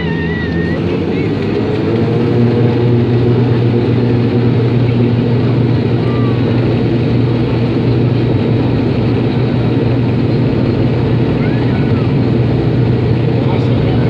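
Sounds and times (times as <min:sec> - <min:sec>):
propeller aircraft engines droning: 0:00.0 - 0:14.0.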